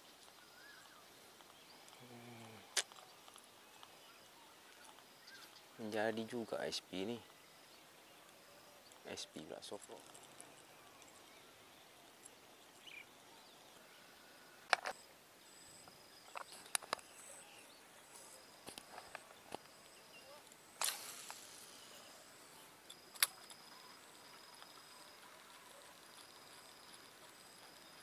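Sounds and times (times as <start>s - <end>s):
faint outdoor background: 0.0s - 28.0s
camera handling clicks and knocks: 14.7s - 15.0s
thin high steady tones: 19.7s - 28.0s.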